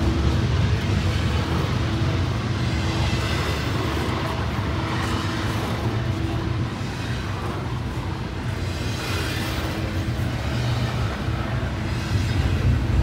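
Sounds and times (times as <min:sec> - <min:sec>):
freight train wheels rumbling: 0:00.0 - 0:13.0.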